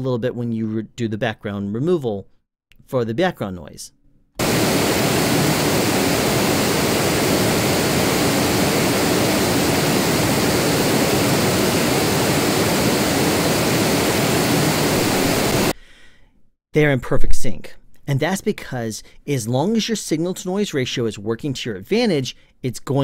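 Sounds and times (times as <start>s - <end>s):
test noise hiss: 4.4s - 15.7s.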